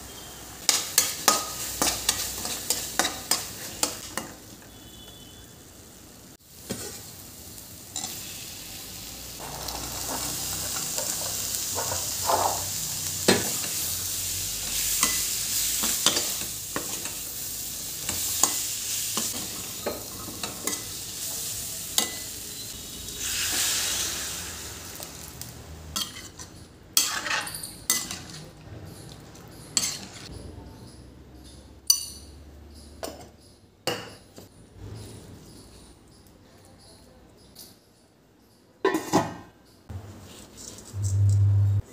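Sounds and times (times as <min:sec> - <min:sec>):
spices sizzling in pan: 0:00.1 - 0:04.8, 0:05.6 - 0:30.4
water hissing in hot pan: 0:06.3 - 0:25.7
spoon scraping metal pan: 0:09.4 - 0:13.9, 0:26.0 - 0:30.4.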